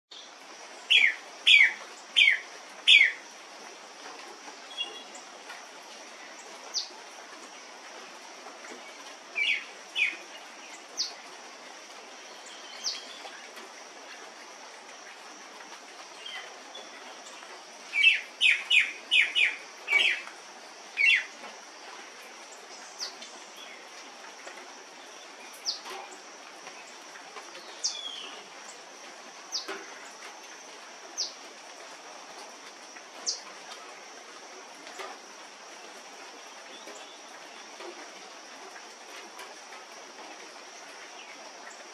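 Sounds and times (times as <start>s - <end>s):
bird calling: 0.9s - 3.2s, 9.4s - 10.2s, 17.9s - 20.3s, 21.0s - 21.4s.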